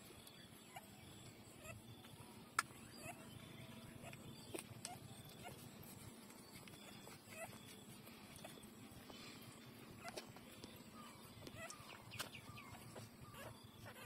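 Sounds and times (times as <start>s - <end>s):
puppies squeaking: 1.6s - 1.9s, 2.9s - 3.3s, 4.0s - 8.8s, 11.0s - 14.0s.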